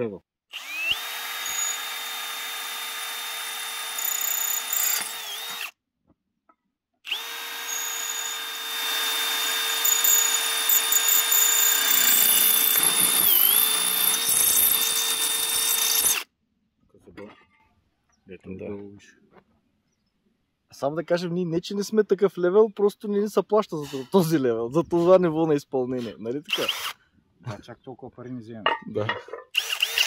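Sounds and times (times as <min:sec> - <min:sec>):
cordless drill motor whine: 0:00.5 - 0:05.7, 0:07.1 - 0:16.2, 0:26.5 - 0:27.0, 0:29.6 - 0:30.0
drill bit grinding into tile: 0:00.6 - 0:05.7, 0:07.1 - 0:16.3, 0:26.5 - 0:27.0, 0:29.5 - 0:30.0.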